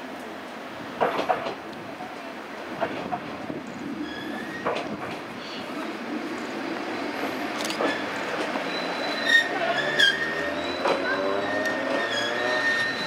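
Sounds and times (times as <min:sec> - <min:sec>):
diesel railcar running: 0:00.0 - 0:13.0
wheels clacking over track: 0:01.0 - 0:01.6, 0:07.2 - 0:13.0
high brake squeal: 0:07.8 - 0:13.0.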